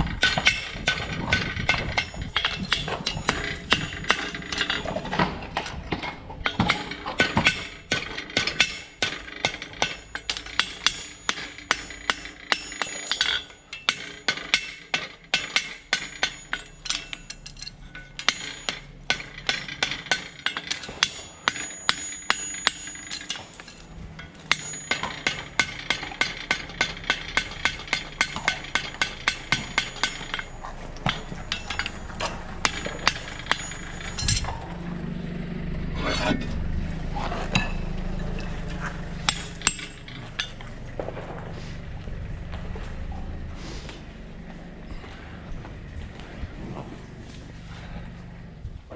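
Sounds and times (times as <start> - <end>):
hammer striking metal: 0.0 - 5.4, 6.4 - 34.9, 35.9 - 36.6, 37.5 - 40.7.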